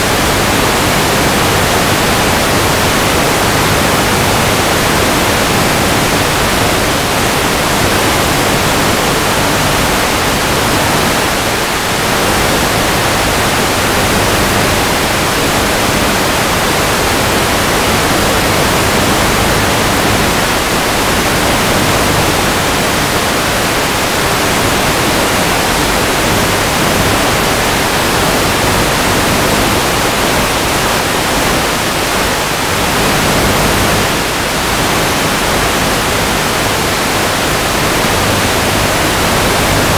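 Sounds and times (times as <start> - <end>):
radio static hiss: 24.1 - 39.9.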